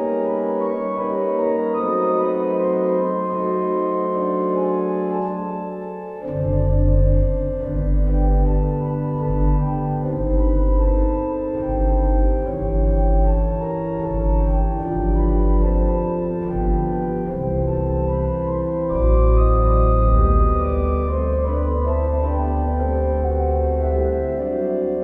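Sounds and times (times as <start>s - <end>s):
organ playing slow chords: 0.0s - 25.0s.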